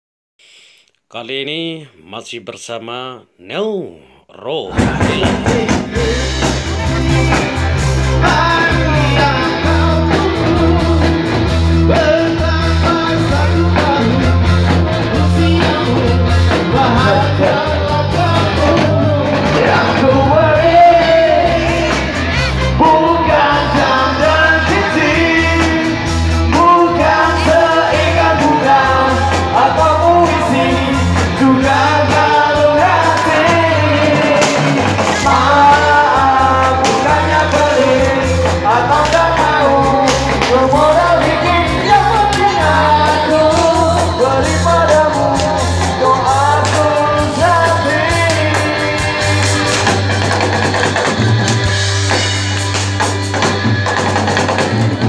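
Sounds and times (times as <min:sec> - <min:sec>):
band music with strong bass: 0:04.6 - 0:55.0
people singing together: 0:04.8 - 0:51.0.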